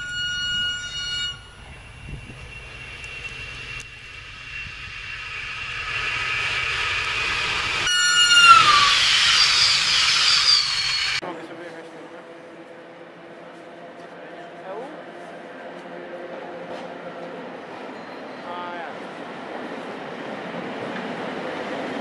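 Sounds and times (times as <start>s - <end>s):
train horn: 0.0s - 10.9s
high whine: 0.0s - 11.2s
train rushing past: 0.0s - 11.4s.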